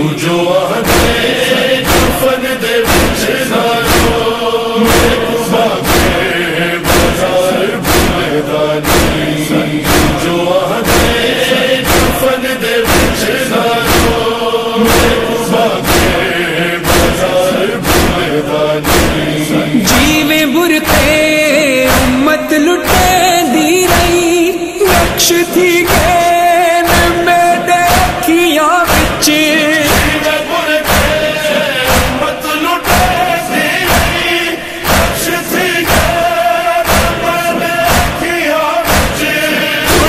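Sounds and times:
crowd chanting in unison: 0.0s - 40.0s
hands slapping bare chests: 32.8s - 33.3s, 36.8s - 39.3s.

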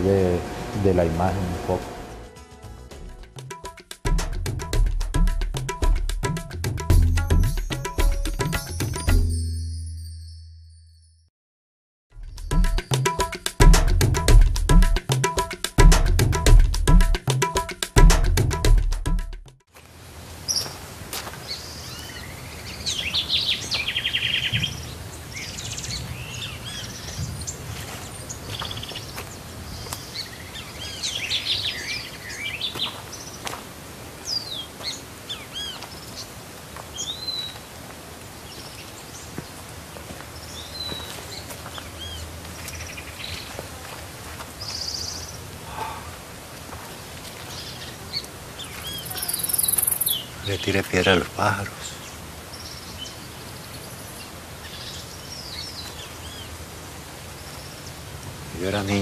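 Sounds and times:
birds chirping and calling: 21.5s - 33.5s, 47.5s - 56.6s.

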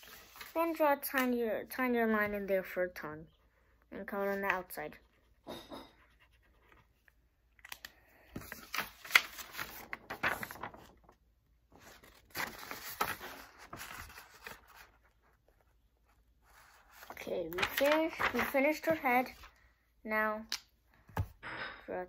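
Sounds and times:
paper rustling and crinkling: 0.0s - 1.3s, 6.0s - 19.6s.

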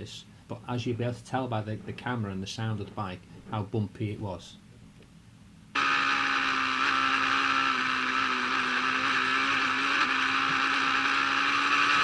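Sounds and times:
motorcycle engine steady note: 5.8s - 12.0s.

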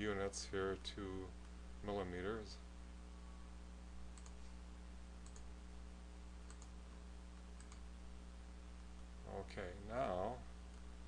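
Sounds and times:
low electrical hum: 0.0s - 11.0s
computer mouse clicking: 4.1s - 4.5s, 5.2s - 5.5s, 6.4s - 6.7s, 7.6s - 7.8s.

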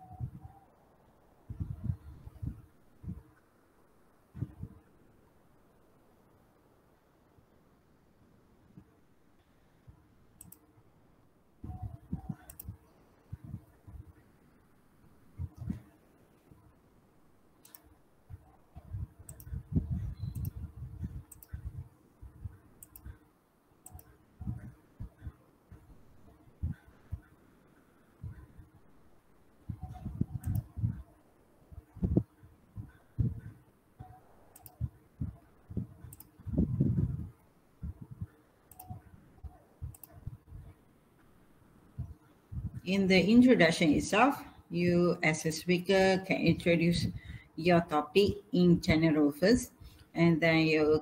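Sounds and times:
computer mouse clicks: 10.4s - 10.7s, 11.7s - 12.8s, 17.6s - 21.8s, 22.8s - 23.2s, 23.8s - 25.8s, 29.8s - 31.0s, 32.8s - 34.9s, 36.0s - 36.4s, 38.2s - 40.4s
sharp clicks and low thumps: 17.6s - 23.2s, 31.7s - 40.8s, 42.0s - 42.8s.

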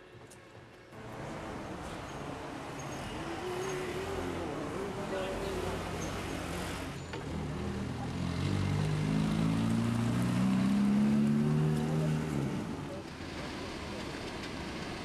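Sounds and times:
car driving past: 5.5s - 12.9s.

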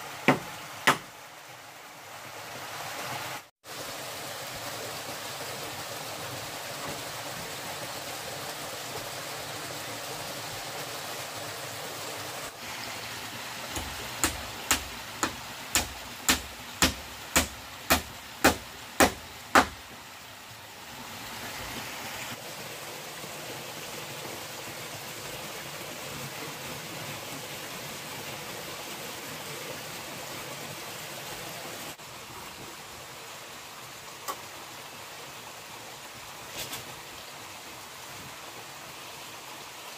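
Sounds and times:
stream water rushing: 0.0s - 39.9s
sharp knocks: 0.2s - 1.1s, 13.7s - 19.8s.

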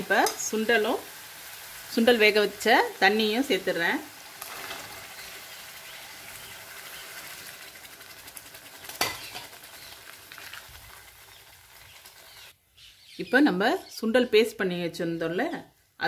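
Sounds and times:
spices sizzling in a pan: 0.0s - 12.6s.

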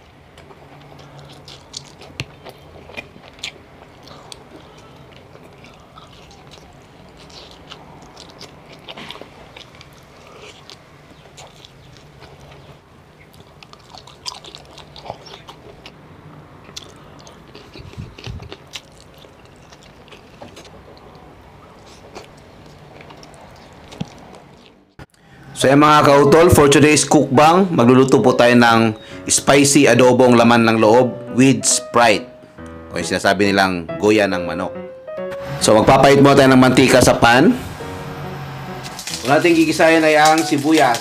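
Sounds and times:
man chewing food: 0.0s - 25.3s.

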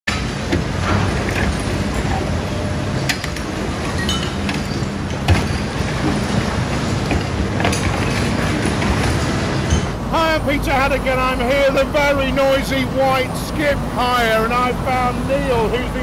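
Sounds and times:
excavator diesel engine under load: 0.2s - 16.0s
debris and metal clanking: 3.0s - 10.0s.

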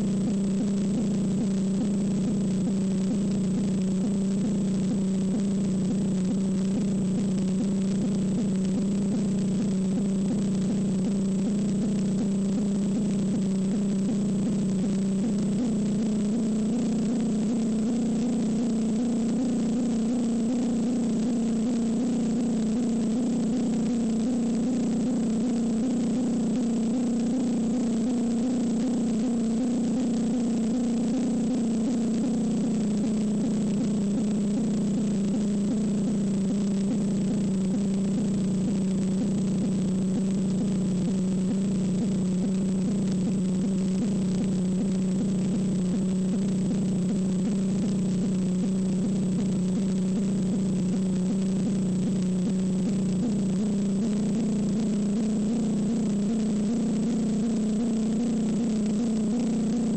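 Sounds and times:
low layered hum: 0.0s - 59.9s.

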